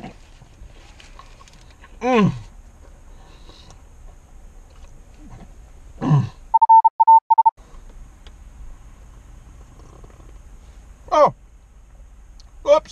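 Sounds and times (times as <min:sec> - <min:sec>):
low grunt: 0:02.0 - 0:02.5, 0:06.0 - 0:06.4
censor bleep: 0:06.5 - 0:07.6.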